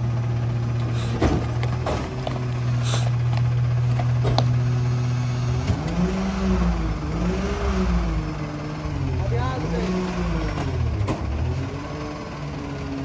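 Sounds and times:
garbage truck engine: 0.0 - 13.0
hydraulic packer blade compacting: 0.0 - 13.0
knocks and clatters of load: 0.7 - 4.6, 10.4 - 11.6.

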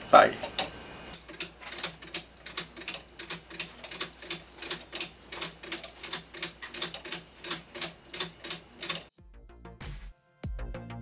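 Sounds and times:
clock escapement ticking: 0.5 - 9.1.

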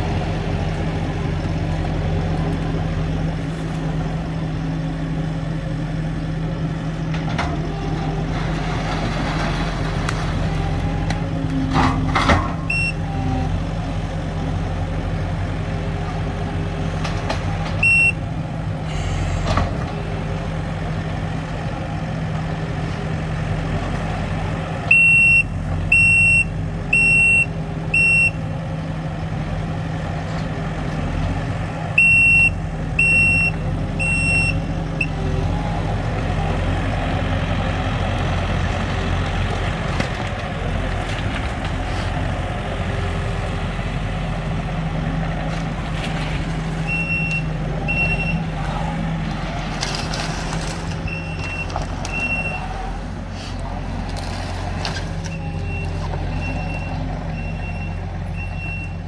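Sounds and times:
diesel engine running: 0.0 - 59.0
backup alarm beeping: 12.7 - 13.0, 32.0 - 35.1.

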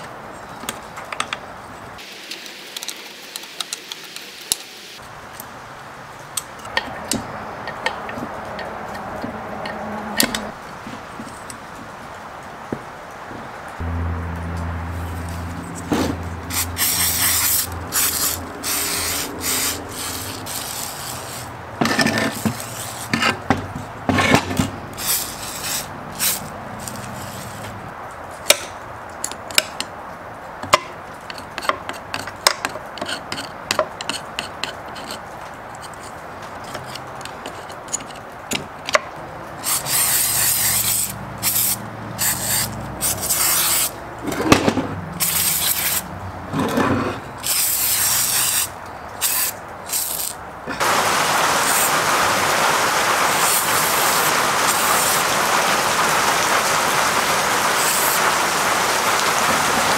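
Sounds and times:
rubbing and scraping: 15.0 - 27.8, 39.6 - 56.5
hissing spray bursts: 16.4 - 21.6, 25.0 - 27.7, 39.6 - 44.0, 45.2 - 46.1, 47.4 - 59.9.

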